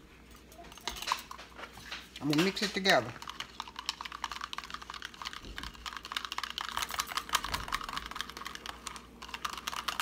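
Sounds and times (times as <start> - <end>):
whisk clicking against plastic cup: 2.2 - 10.0.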